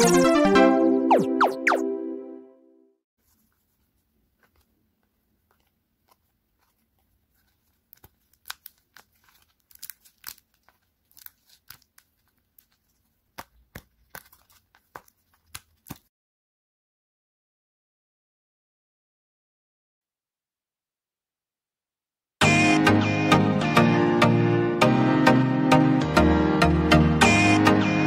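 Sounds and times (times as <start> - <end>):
paper crinkling and snapping: 3.2 - 16.1.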